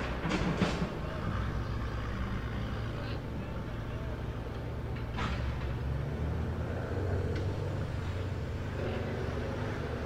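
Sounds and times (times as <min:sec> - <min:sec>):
truck engine running under load: 0:00.0 - 0:10.0.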